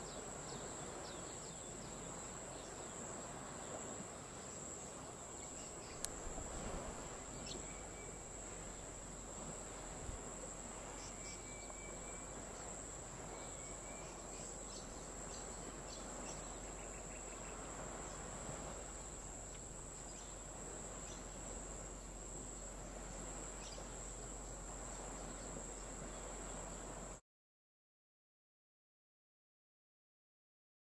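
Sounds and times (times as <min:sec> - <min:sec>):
insects droning: 0:00.0 - 0:27.2.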